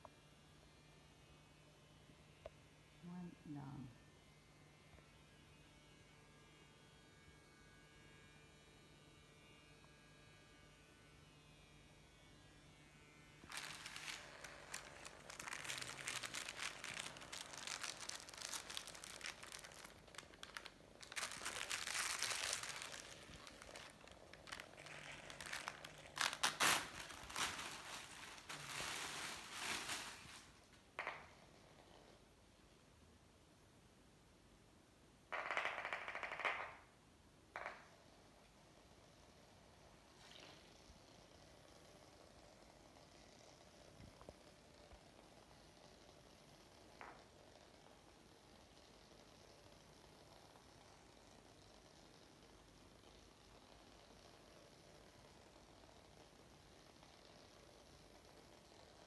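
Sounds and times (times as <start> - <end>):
faint electric buzz: 0.0 - 35.3
plastic wrapping crinkling: 13.4 - 31.3.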